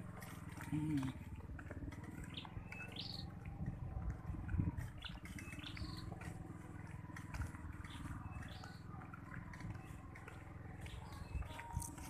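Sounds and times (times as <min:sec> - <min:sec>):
small motorcycle engine running: 0:00.0 - 0:12.0.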